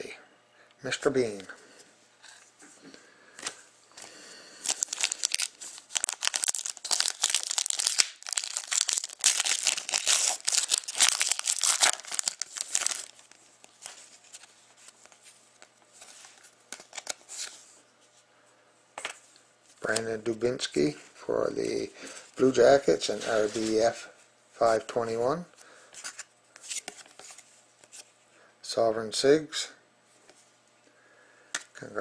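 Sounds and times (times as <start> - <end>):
cards rustling: 3.4 - 15.2, 16.0 - 17.6
foil wrapper crinkling: 4.6 - 15.2.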